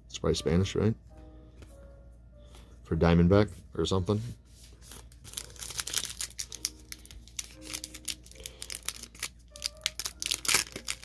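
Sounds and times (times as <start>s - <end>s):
faint music: 0.0s - 11.0s
cards clicking and wrapper crinkling: 4.9s - 11.0s.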